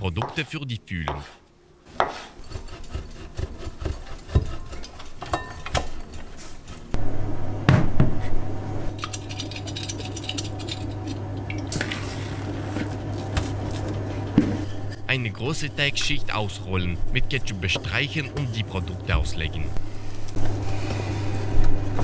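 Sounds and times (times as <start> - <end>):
steady low hum: 5.4 - 22.0.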